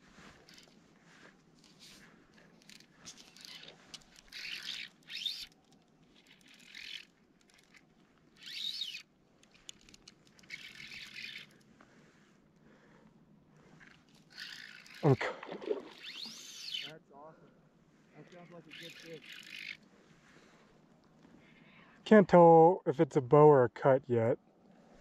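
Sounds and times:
fishing reel drag buzzing: 0.2 - 0.8, 1.6 - 11.8, 13.7 - 17.0, 18.2 - 20.6.

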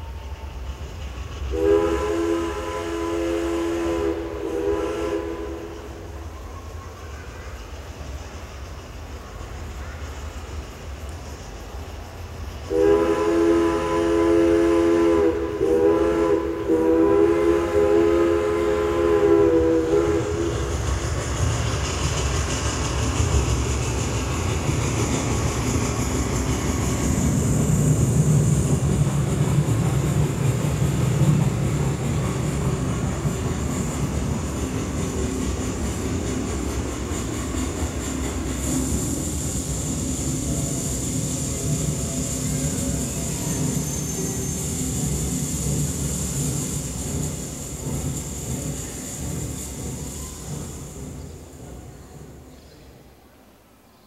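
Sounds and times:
train rumble and clatter: 0.0 - 53.8
steam train chime whistle: 1.5 - 6.7, 12.7 - 20.8, 41.8 - 44.9.

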